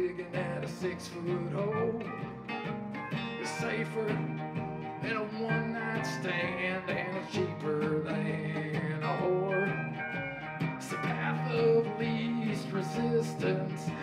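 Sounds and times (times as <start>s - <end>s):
man singing lead vocal: 0.0s - 2.5s, 3.3s - 10.1s, 10.8s - 14.0s
pedal steel guitar: 0.0s - 14.0s
strummed electric guitar: 0.0s - 14.0s
upright bass: 0.0s - 14.0s.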